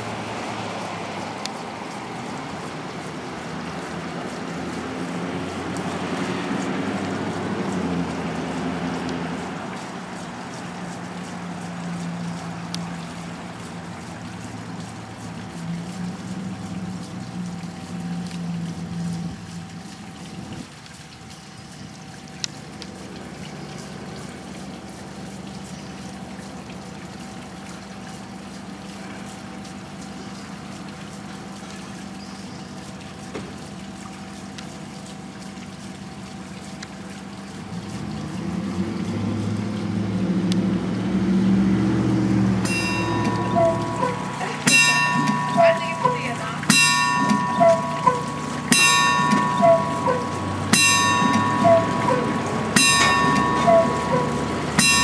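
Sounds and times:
water pouring onto water wheel: 0.0 - 55.0
low hum: 41.6 - 55.0.

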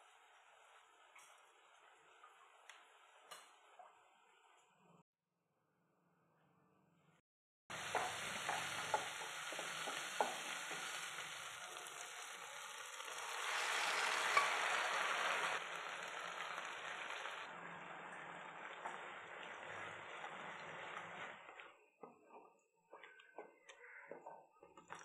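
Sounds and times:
food sizzling in a pan: 7.7 - 21.5.

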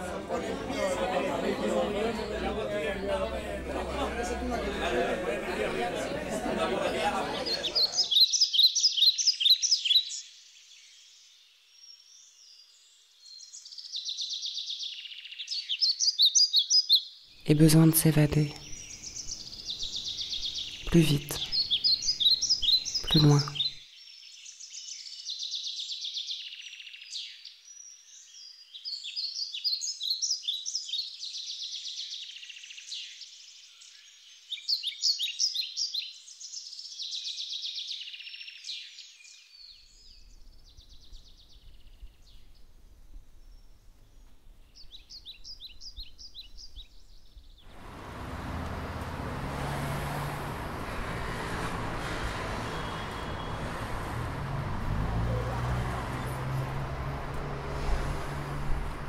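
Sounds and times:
city street traffic rumble: 0.0 - 8.1, 17.5 - 23.8, 47.7 - 59.0
songbirds chirping and trilling: 0.0 - 59.0.

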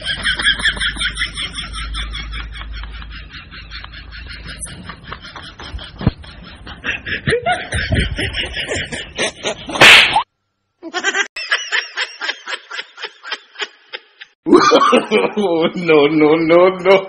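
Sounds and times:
loud slap: 9.7 - 10.3
high-pitched snickering laughter: 10.8 - 15.1.

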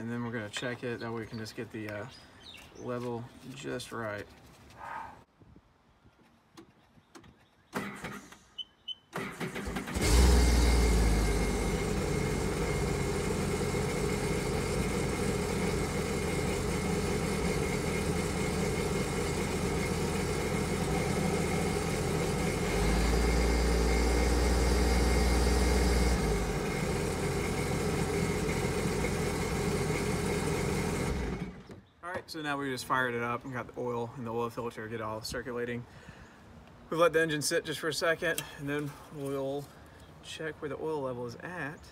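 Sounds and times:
engine cranking: 9.2 - 31.7
engine idling: 9.4 - 31.7.

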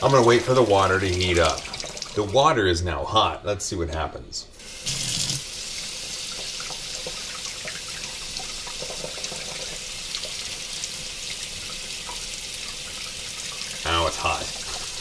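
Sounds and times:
faucet water splashing on glass plate: 0.0 - 2.3, 4.6 - 13.9.

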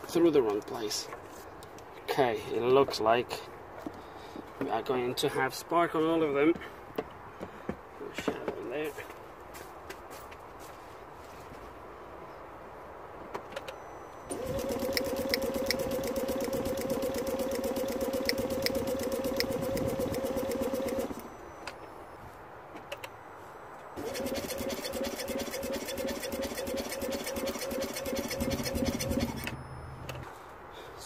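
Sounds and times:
engine cranking on starter: 14.3 - 21.5, 24.0 - 30.2.

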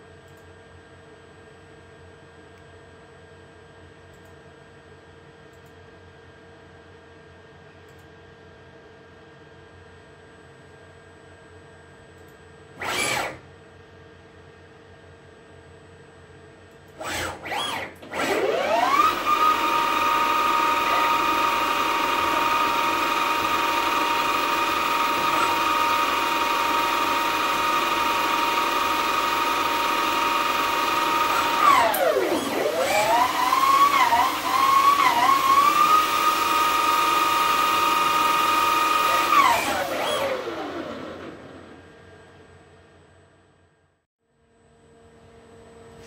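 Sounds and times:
lathe spindle whine: 17.0 - 41.9.

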